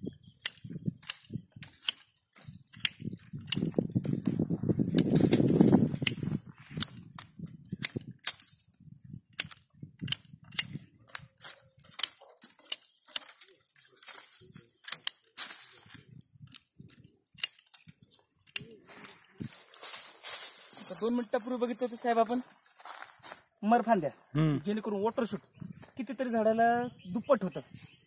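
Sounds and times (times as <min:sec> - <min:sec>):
pruning shears snipping twigs: 0:00.3 - 0:23.4
branches rustling: 0:01.0 - 0:07.6, 0:11.0 - 0:24.1.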